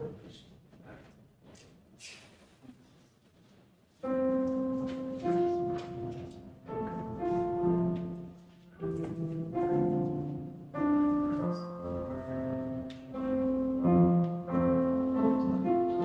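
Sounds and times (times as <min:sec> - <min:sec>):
slow held instrumental chords: 0:04.1 - 0:16.0.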